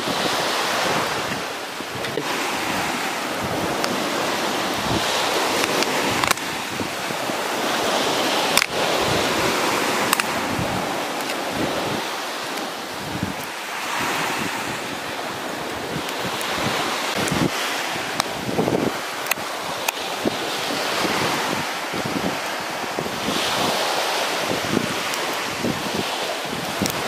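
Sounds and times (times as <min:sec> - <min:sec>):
surf washing on a beach: 0:00.0 - 0:27.0
wind buffeting microphone: 0:00.0 - 0:27.0
sharp clicks: 0:05.6 - 0:06.4, 0:08.5 - 0:08.8.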